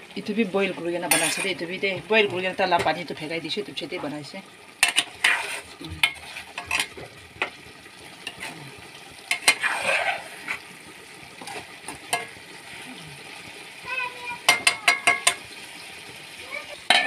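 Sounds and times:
gravy sizzling: 0:00.0 - 0:17.0
ladle scraping metal pot: 0:00.8 - 0:03.2, 0:04.8 - 0:07.6, 0:08.2 - 0:08.6, 0:09.2 - 0:10.8, 0:11.4 - 0:12.8, 0:14.4 - 0:15.5.

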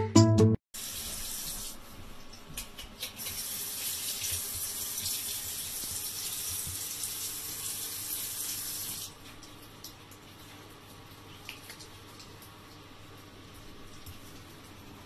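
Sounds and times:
water running from a tap: 0:00.8 - 0:01.8, 0:03.0 - 0:10.3.

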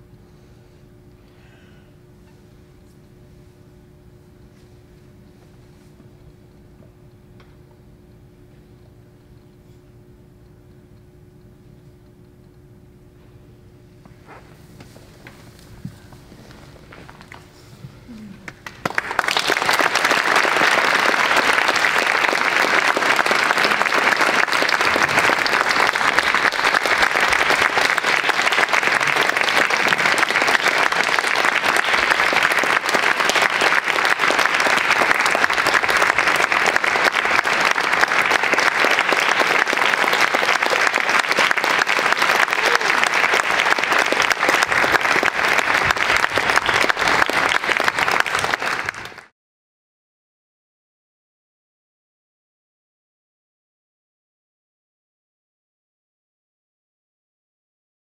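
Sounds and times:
audience applause: 0:18.1 - 0:49.3.

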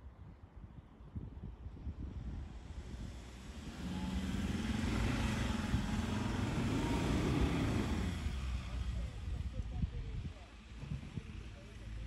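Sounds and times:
diesel engine under throttle: 0:03.4 - 0:09.5.

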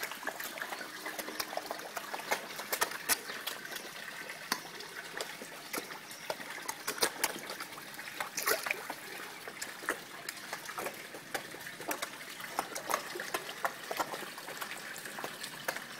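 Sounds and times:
fish splashing and slurping: 0:00.0 - 0:15.9
water trickling: 0:00.0 - 0:15.9.

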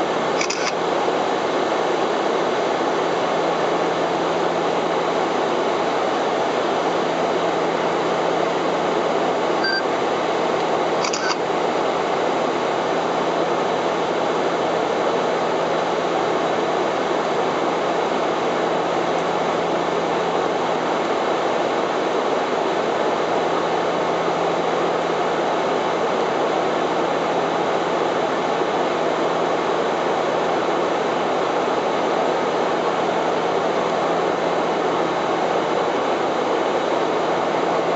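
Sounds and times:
airplane cockpit engine rush: 0:00.0 - 0:37.9
constant low hum: 0:07.3 - 0:11.5
faint short blips: 0:09.6 - 0:09.9.

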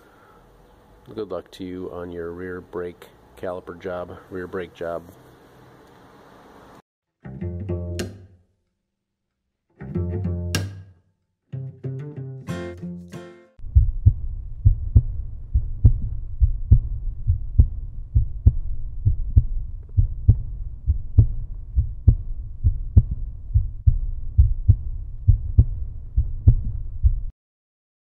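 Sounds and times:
deep thudding heartbeat-like beat: 0:13.6 - 0:27.3.

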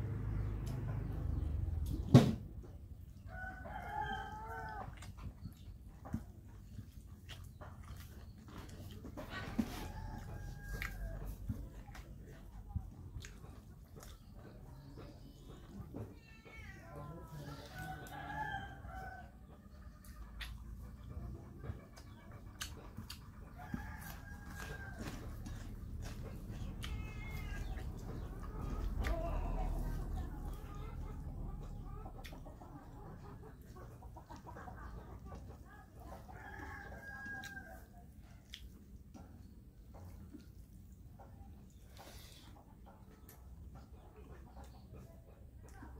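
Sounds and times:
chickens clucking: 0:00.0 - 0:45.9
eating rice by hand: 0:03.2 - 0:16.2, 0:21.9 - 0:31.1, 0:35.1 - 0:45.9.

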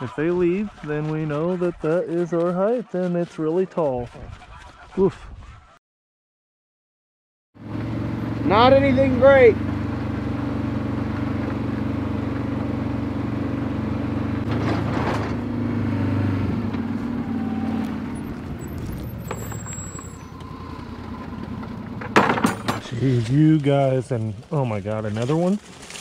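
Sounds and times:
vehicle engine idling: 0:07.6 - 0:14.8.

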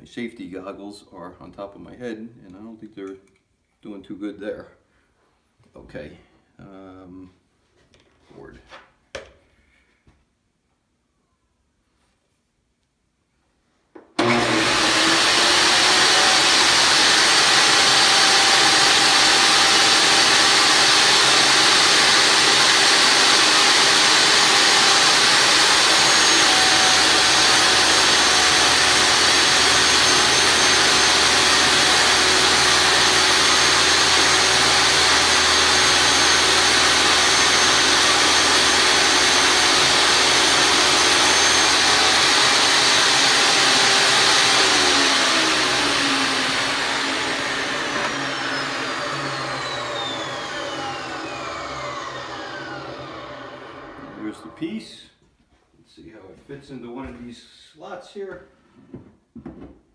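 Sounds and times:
table saw running: 0:14.2 - 0:54.6
saw cutting panel: 0:14.2 - 0:54.8.

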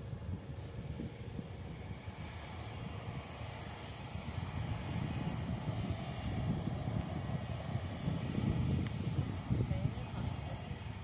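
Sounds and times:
jet engines running: 0:00.0 - 0:11.0.

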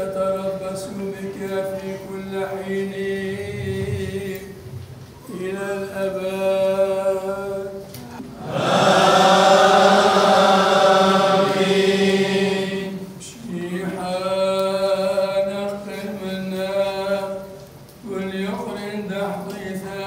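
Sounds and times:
single voice chanting: 0:06.9 - 0:14.2
several voices singing together: 0:08.4 - 0:14.9.

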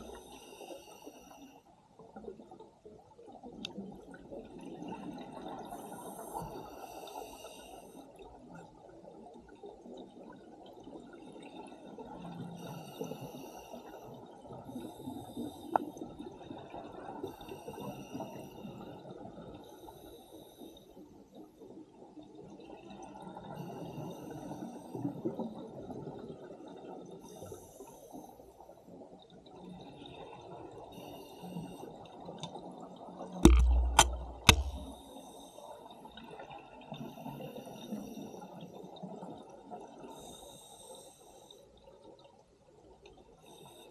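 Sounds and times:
diver regulator breathing hiss: 0:00.1 - 0:01.7, 0:05.6 - 0:08.1, 0:12.6 - 0:14.2, 0:40.1 - 0:41.6.

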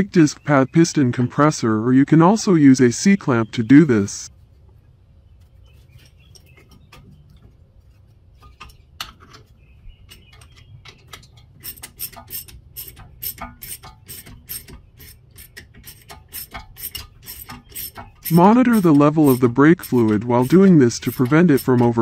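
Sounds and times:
ratchet clicking: 0:11.2 - 0:22.0.

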